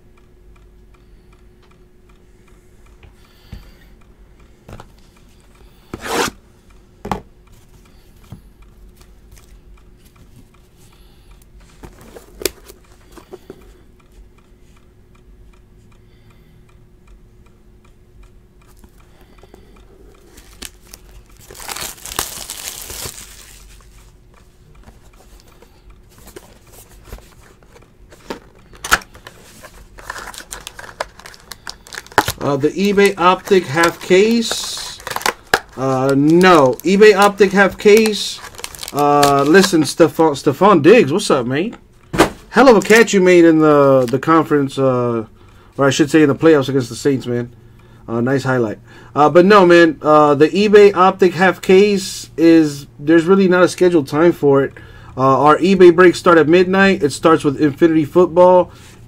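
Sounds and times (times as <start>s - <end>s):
faint steady hum: 0.0s - 59.0s
plastic wrap crinkling: 20.3s - 24.1s, 26.2s - 40.0s
plastic wrap ripping: 20.4s - 23.8s, 30.0s - 39.7s.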